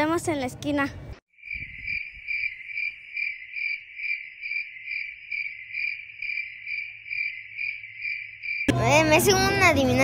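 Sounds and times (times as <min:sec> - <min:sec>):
cricket chirping: 0:01.3 - 0:08.7.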